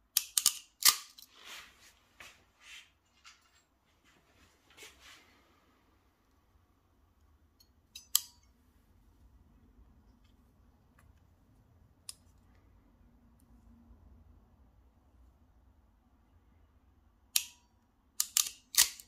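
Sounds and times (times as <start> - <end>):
rustling and scraping: 1.1 - 5.6.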